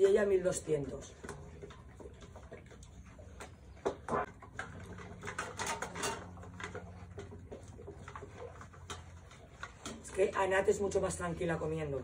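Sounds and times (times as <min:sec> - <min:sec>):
dogs chewing and lapping: 0:00.0 - 0:12.0
muzzles knocking metal bowls: 0:03.9 - 0:07.3.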